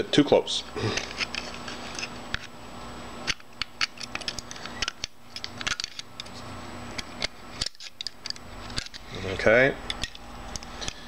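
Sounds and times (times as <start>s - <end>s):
small metallic clicks and scrapes: 3.3s - 6.4s.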